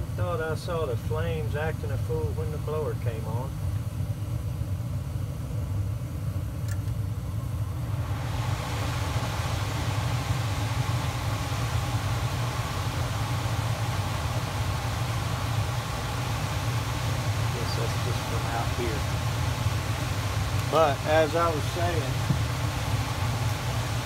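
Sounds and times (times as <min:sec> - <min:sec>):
blower rush of air: 0:00.0 - 0:24.0
furnace low rumble: 0:00.0 - 0:24.0.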